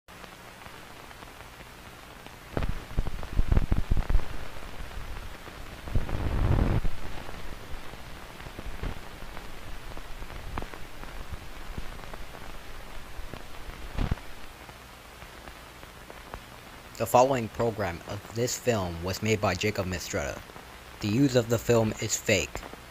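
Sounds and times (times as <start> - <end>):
film soundtrack hiss: 0.1 - 22.9
pops and crackles: 0.3 - 17.0.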